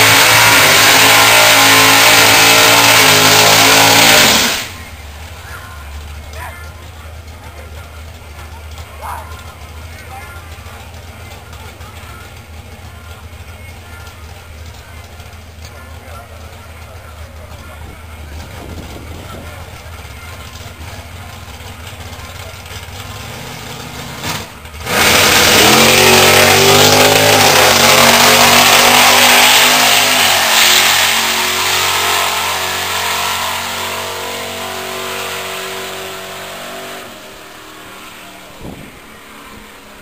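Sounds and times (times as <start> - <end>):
drag car engine revving: 0.0 - 40.0.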